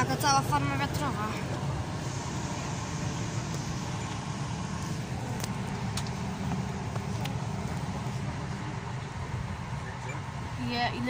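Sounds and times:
road and engine rumble in car: 0.0s - 11.0s.

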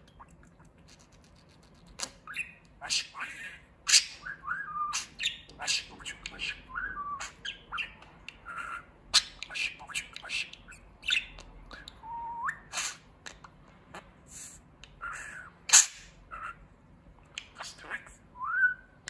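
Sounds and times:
budgerigar warbling: 15.0s - 16.6s.

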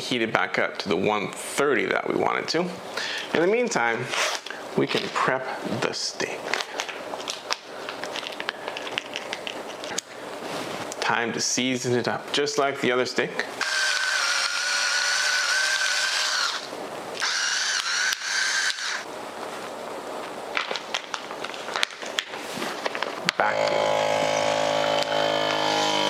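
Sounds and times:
electric pepper grinder whirring: 13.6s - 19.1s, 23.4s - 26.0s
vacuum sealer pump humming: 13.6s - 19.1s, 23.4s - 26.0s.

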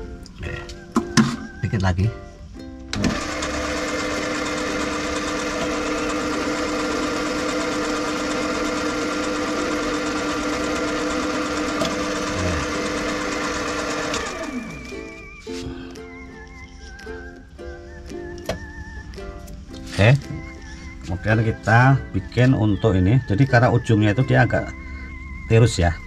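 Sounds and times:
metal lathe running: 2.9s - 15.2s
lathe spinning down: 2.9s - 15.4s.

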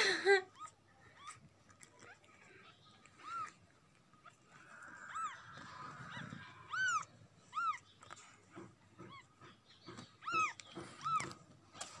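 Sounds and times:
kitten mewing: 4.3s - 7.8s.

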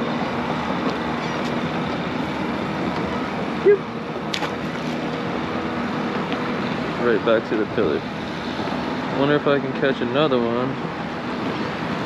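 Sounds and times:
traffic noise: 0.0s - 12.0s
fish splashing into water: 4.3s - 5.1s.

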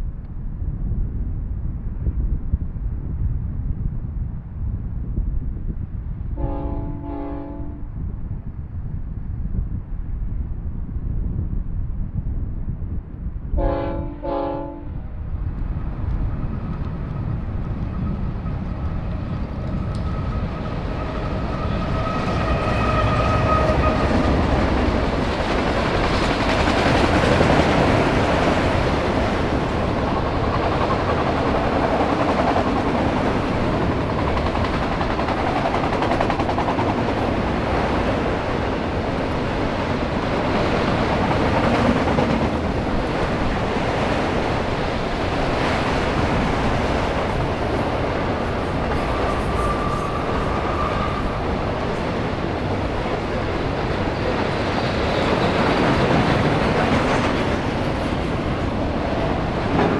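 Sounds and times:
train passing with rumble: 0.0s - 59.9s
train horn blasts: 6.4s - 7.9s, 13.6s - 15.0s, 21.0s - 24.5s.

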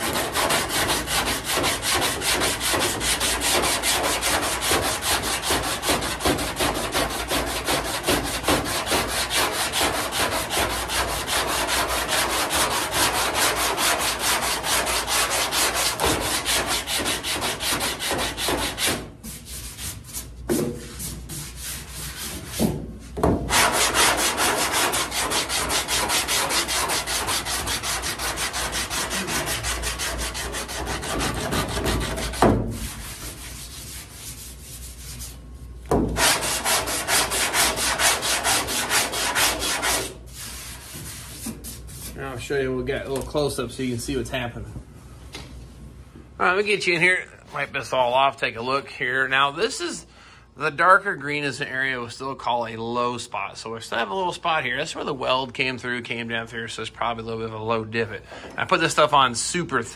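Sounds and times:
sandpaper rasping on filler: 0.0s - 22.8s, 23.5s - 35.5s, 36.2s - 42.4s.

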